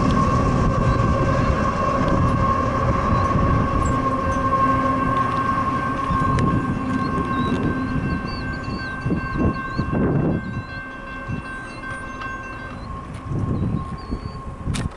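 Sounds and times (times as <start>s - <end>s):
freight train rumbling: 0.0s - 14.9s
high whine: 0.0s - 14.9s
birds chirping: 6.0s - 14.5s.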